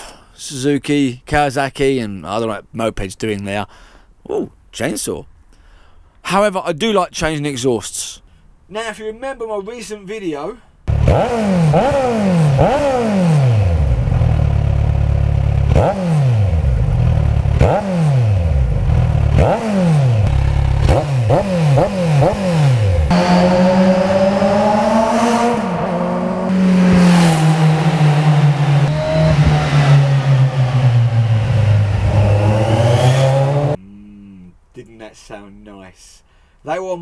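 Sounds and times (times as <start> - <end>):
motorcycle engine revving: 10.9 - 33.8.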